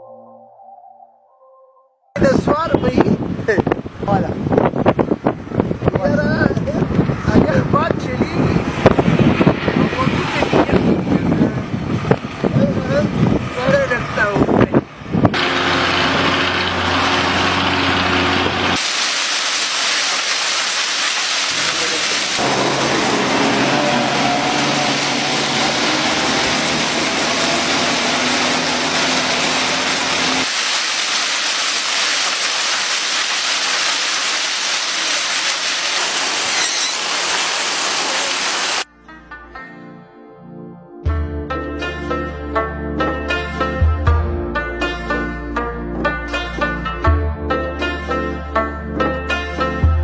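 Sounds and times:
rushing wind noise on microphone: 2.2s - 15.4s
low vehicle engine hum: 8.5s - 18.8s, 21.5s - 30.5s.

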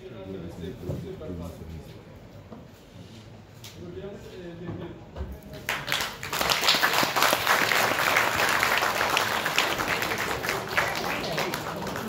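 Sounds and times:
crowd applauding: 5.7s - 12.0s.

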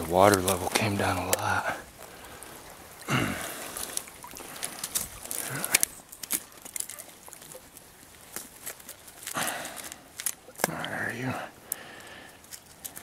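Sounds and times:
water splashing and dripping: 0.0s - 10.9s.

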